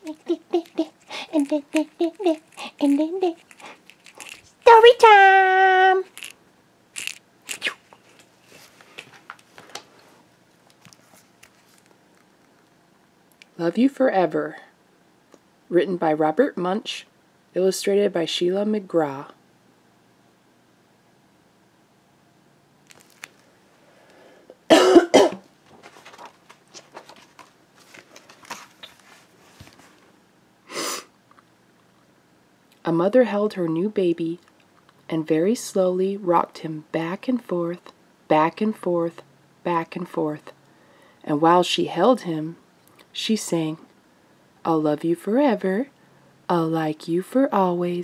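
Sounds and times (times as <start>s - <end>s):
handling rustles and clicks: 0.1s - 4.8s, 25.6s - 30.0s
book handling clicks and rustling: 7.9s - 10.0s, 10.6s - 12.7s, 22.9s - 23.5s, 25.6s - 30.0s
person coughing: 24.7s - 25.4s.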